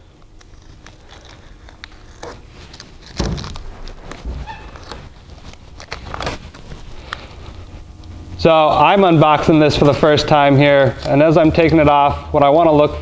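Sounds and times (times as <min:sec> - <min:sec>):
tape peeling off crackling: 0:00.0 - 0:08.2.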